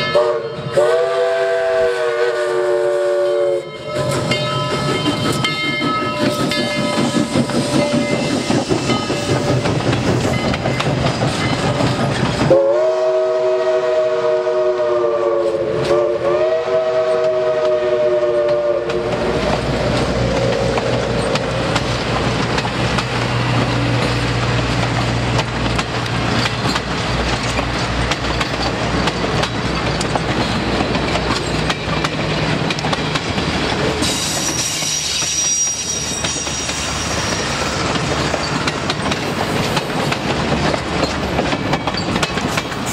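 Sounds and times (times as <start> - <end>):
steam locomotive whistle: 0.0 - 4.4, 12.4 - 19.8, 34.0 - 38.0
wheels clicking over rail joints: 3.9 - 12.6, 18.4 - 42.9.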